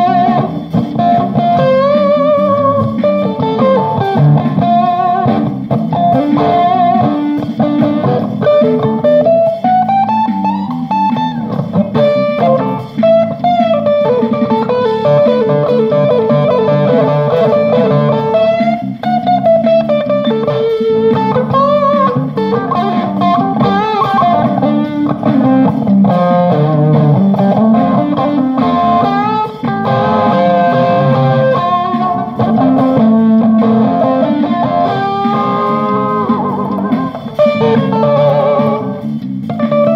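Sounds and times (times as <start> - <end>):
guitar melodic lines: 0.0 - 39.9
lower guitar part: 0.0 - 39.9.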